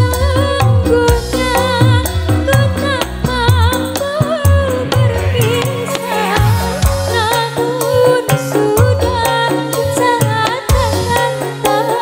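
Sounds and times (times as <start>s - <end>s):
live band playing: 0.0s - 12.0s
woman singing: 0.0s - 12.0s
low drum beat: 1.1s - 7.6s.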